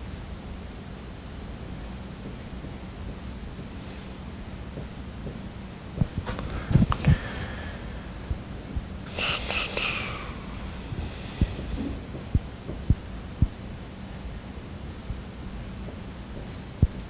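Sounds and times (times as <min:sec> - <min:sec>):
marker scratching on whiteboard: 0:01.8 - 0:06.3.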